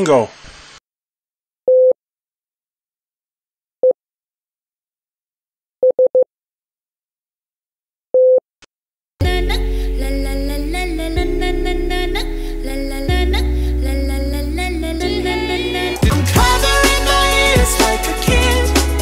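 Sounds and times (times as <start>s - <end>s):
music: 9.2s - 19.0s.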